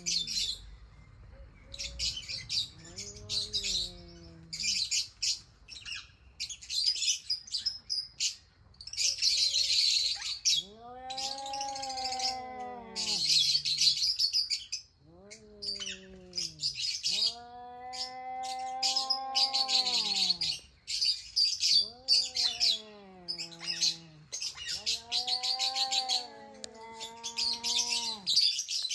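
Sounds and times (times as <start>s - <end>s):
small birds chirping: 0.0s - 28.9s
animal calls rising and falling: 10.6s - 14.0s, 15.1s - 20.6s, 21.7s - 28.4s.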